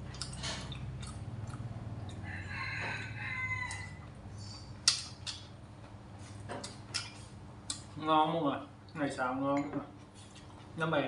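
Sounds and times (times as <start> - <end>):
rooster crowing: 2.2 - 4.1.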